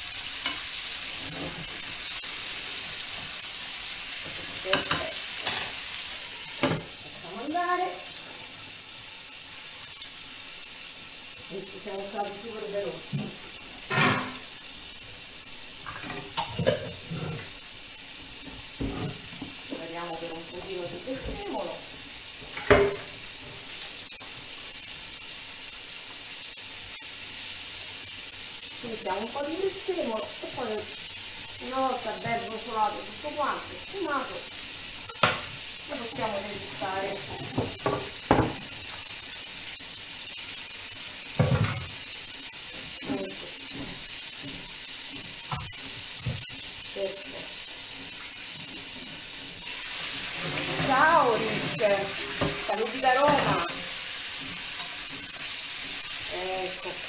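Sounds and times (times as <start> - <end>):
food sizzling in a frying pan: 0.0 - 57.0.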